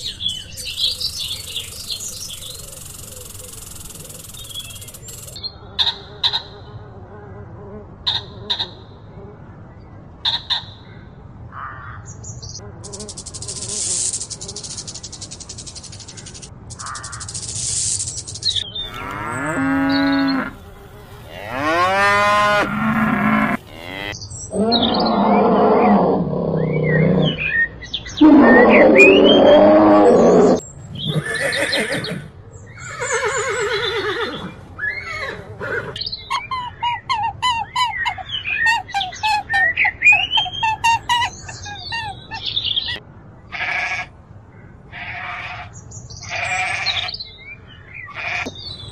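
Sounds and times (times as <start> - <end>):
short chirping calls: 0.0 - 5.4, 36.0 - 43.0
loud pitched animal calls: 18.7 - 27.6, 32.8 - 43.0.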